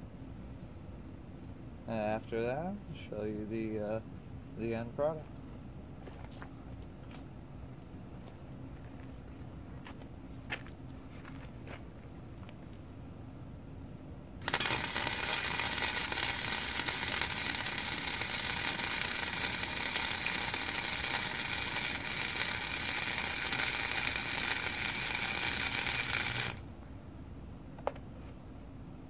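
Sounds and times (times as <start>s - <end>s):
welder arc crackling: 14.4s - 26.6s.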